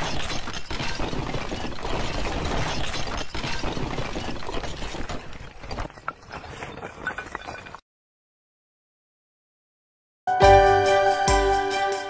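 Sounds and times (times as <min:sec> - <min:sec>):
brick wall collapsing: 0:00.0 - 0:07.8.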